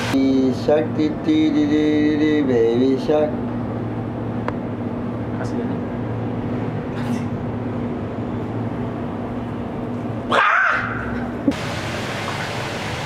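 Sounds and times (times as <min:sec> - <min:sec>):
low room hum: 0:00.0 - 0:13.0
man yelping: 0:10.3 - 0:11.1.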